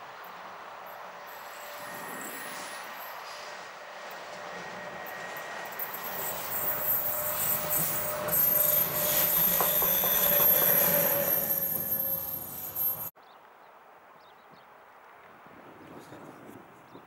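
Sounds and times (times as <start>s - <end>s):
train wheels on rails: 0.1s - 13.1s.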